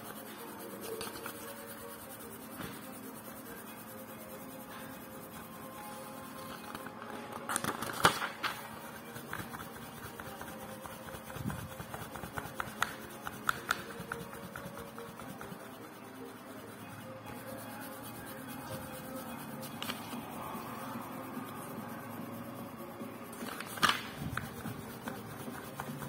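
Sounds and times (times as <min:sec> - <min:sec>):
fingers tapping on book pages: 0:06.6 - 0:15.9, 0:19.6 - 0:20.4, 0:23.3 - 0:26.0.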